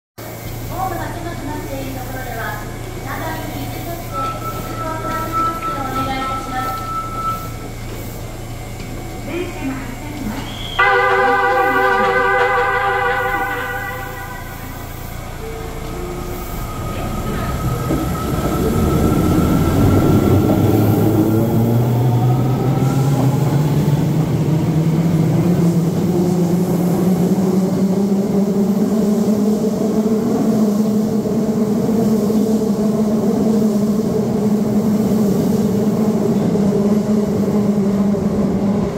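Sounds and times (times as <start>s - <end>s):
wheels rumbling on track: 0.3s - 38.9s
train motors whining: 0.4s - 27.5s.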